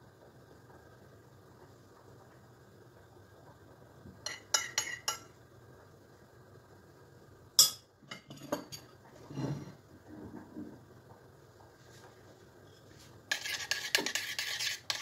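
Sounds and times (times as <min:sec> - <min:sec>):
metal spoon clinking on a plate: 0:04.3 - 0:05.3.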